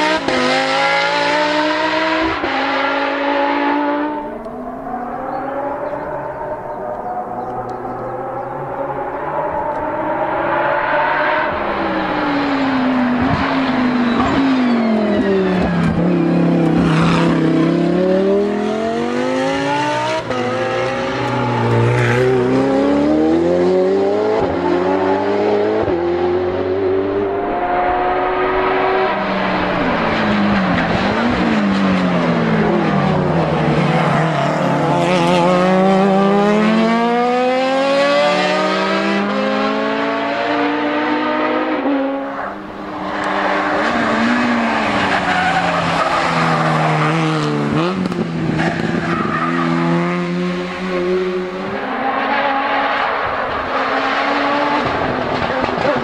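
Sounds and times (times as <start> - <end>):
race car engines revving: 0.0 - 56.0
tyre squeal: 13.2 - 15.8.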